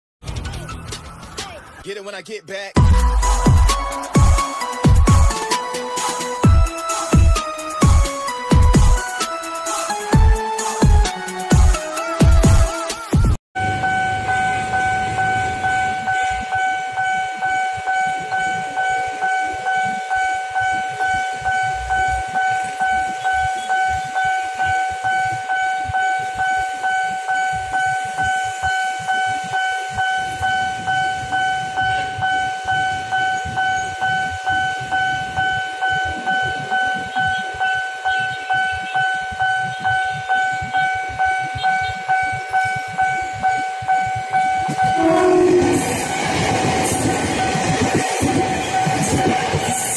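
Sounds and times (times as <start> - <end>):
level crossing warning bell: 13.6 - 49.9.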